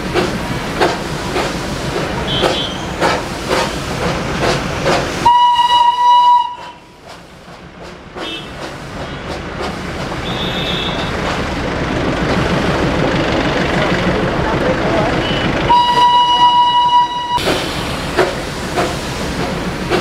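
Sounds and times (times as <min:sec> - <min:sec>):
steam hiss: 0:00.0 - 0:07.6, 0:17.4 - 0:20.0
steam locomotive chuffing: 0:00.0 - 0:20.0
train running clatter: 0:00.0 - 0:20.0
steam whistle: 0:05.2 - 0:06.9, 0:15.7 - 0:17.5.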